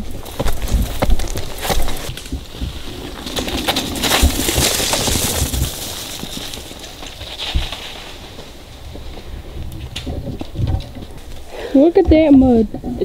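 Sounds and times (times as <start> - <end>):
wind buffeting the microphone: 0.0 - 6.0, 7.5 - 13.0
bike knocking and rattling: 0.0 - 13.0
tyres rushing over leaves: 1.2 - 9.9.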